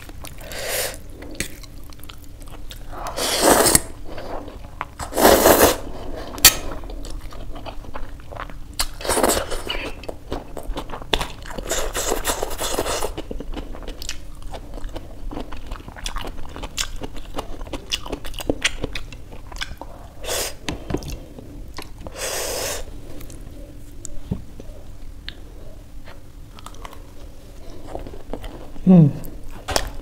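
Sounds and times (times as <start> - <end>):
chewing and crunching: 1.1 - 3.1, 6.0 - 22.1, 23.1 - 30.0
slurping noodles: 3.0 - 3.9, 5.0 - 6.4.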